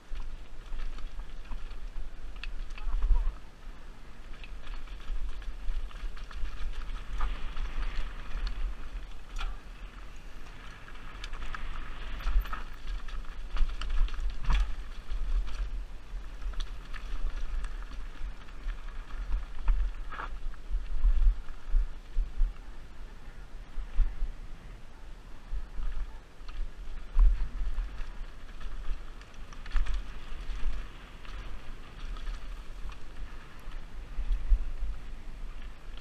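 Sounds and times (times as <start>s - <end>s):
bike rattling and knocking: 0.0s - 3.3s, 4.2s - 20.4s, 25.8s - 33.8s
bike tyres rolling over stones: 0.0s - 36.0s
wind buffeting microphone: 0.0s - 36.0s.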